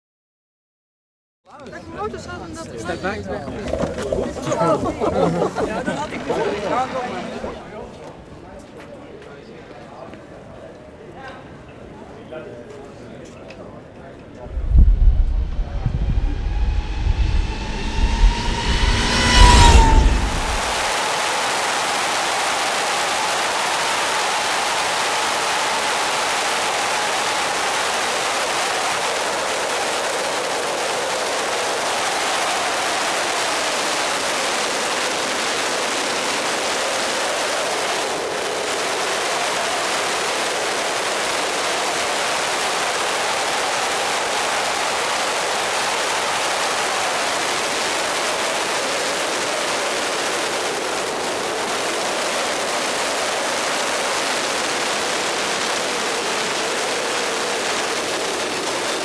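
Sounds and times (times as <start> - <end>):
wind rushing over camera: 14.4 - 22.4
electric motor whine: 14.8 - 21.2.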